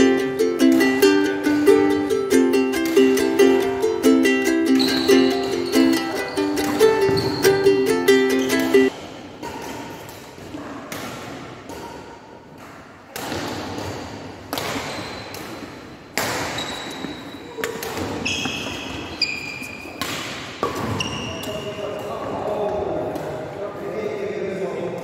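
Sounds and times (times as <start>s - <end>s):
rackets striking shuttlecock: 0.0s - 19.1s, 19.9s - 23.4s
shoes squeaking on wooden floor: 4.7s - 8.9s, 16.6s - 20.0s, 20.8s - 21.8s.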